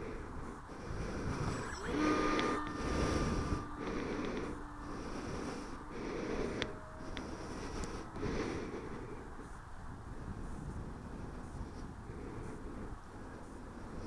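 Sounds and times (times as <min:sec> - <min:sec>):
electric motor and propeller: 0:00.0 - 0:14.0
wind rushing on microphone: 0:00.0 - 0:14.0
steady tone: 0:00.7 - 0:10.4.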